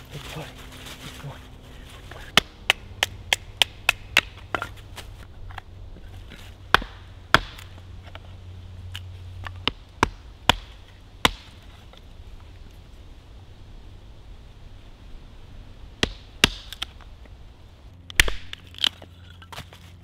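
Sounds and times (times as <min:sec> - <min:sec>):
hatchet striking wood: 0:02.4 - 0:04.7, 0:06.7 - 0:07.8, 0:09.4 - 0:11.6, 0:16.0 - 0:16.9, 0:18.1 - 0:18.9.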